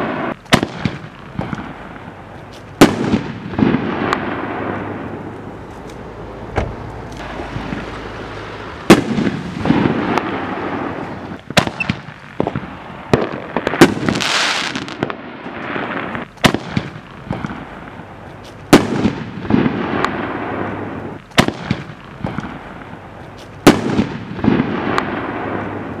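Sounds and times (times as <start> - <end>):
firework bangs with echo: 0.0 - 2.1, 2.8 - 5.2, 8.8 - 18.0, 18.7 - 23.0, 23.6 - 26.0
firework hissing rush: 7.2 - 15.0.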